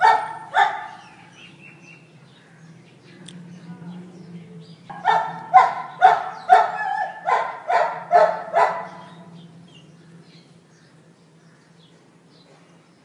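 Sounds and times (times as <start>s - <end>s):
dog barking: 0.0s - 1.1s, 4.9s - 9.2s.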